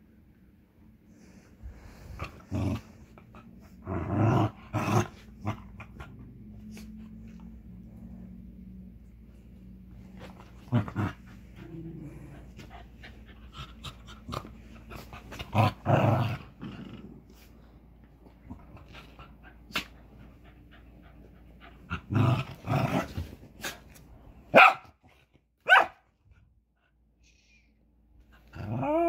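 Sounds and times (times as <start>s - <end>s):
dogs growling in play: 1.1s - 24.0s, 28.2s - 29.0s
loud sharp dog barks: 24.5s - 24.9s, 25.6s - 26.0s.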